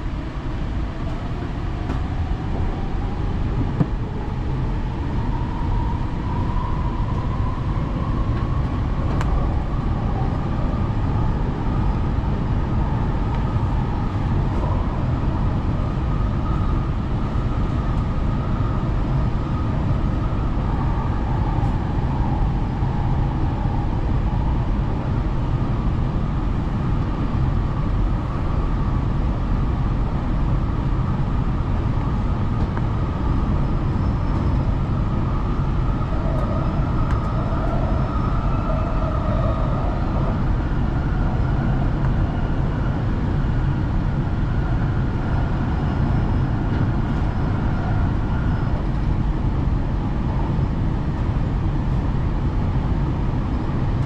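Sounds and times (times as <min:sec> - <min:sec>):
faint whining tones: 0:00.0 - 0:52.7
wheels rumbling on rail: 0:00.0 - 0:54.0.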